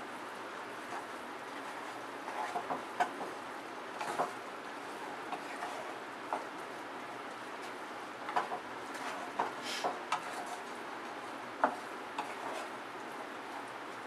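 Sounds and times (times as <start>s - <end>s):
spatula scraping and knocking pan: 0.8s - 3.4s, 4.0s - 6.6s, 7.6s - 10.8s, 11.6s - 12.8s.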